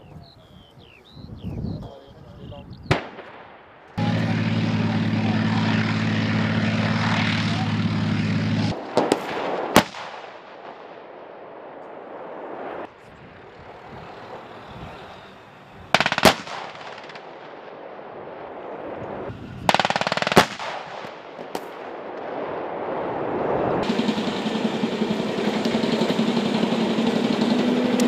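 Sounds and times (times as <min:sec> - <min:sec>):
machine-gun fire: 0:02.9 - 0:11.2, 0:16.0 - 0:17.8, 0:19.7 - 0:22.0
sharp loud gunshot: 0:08.7 - 0:11.0, 0:16.0 - 0:17.5, 0:19.7 - 0:21.9.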